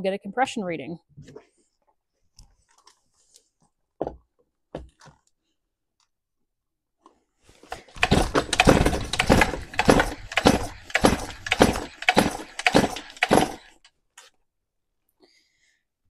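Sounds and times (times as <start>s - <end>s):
chainsaw engine cranking: 7.7s - 13.9s.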